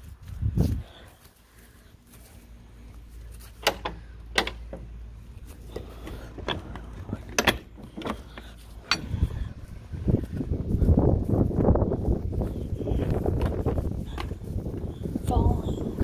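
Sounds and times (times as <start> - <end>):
phone handling rumble: 3.0 - 10.8
sharp clicks and knocks: 3.3 - 9.4.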